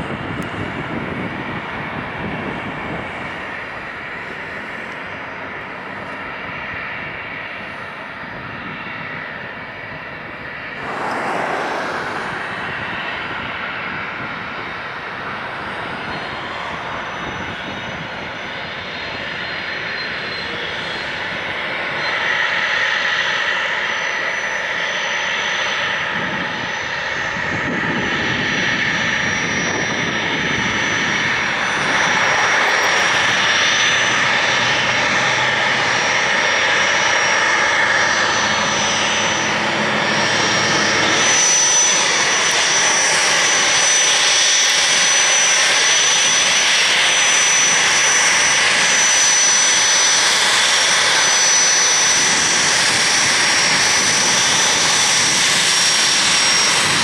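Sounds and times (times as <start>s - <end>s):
jet engines whining: 0.0s - 57.0s
thin high tone: 31.5s - 34.8s.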